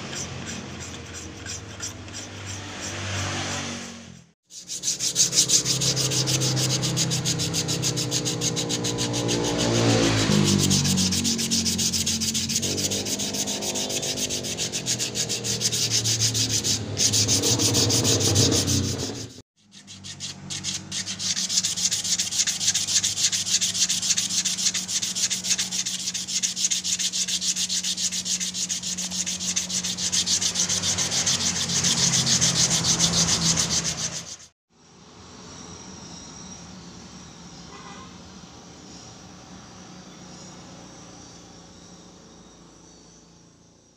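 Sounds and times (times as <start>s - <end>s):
sandpaper rubbing on wood: 0.0s - 34.6s
insects chirping: 4.6s - 34.4s.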